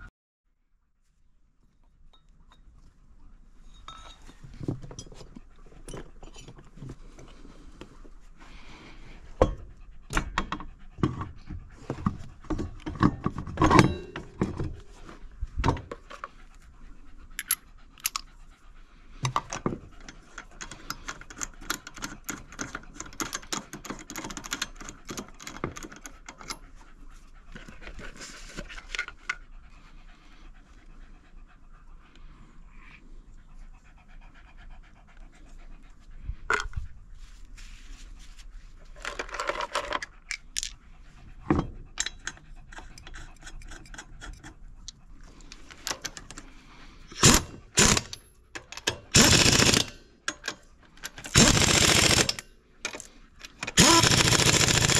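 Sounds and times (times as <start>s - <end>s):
dog panting: 3.0s - 13.6s, 14.2s - 39.0s, 39.9s - 47.1s
metal knocks and clinks: 3.7s - 6.7s, 12.8s - 14.8s.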